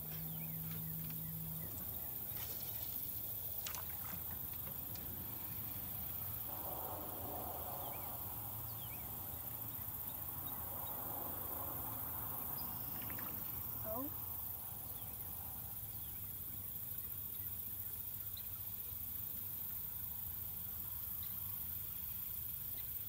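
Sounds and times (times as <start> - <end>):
wind: 0.0 - 23.0
water noise around boat: 0.3 - 6.6.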